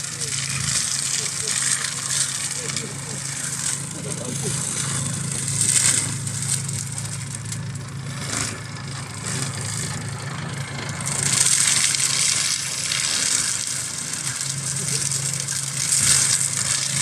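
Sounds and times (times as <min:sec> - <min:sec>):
mulcher shredding wood: 0:00.0 - 0:17.0
tractor engine droning: 0:00.0 - 0:17.0.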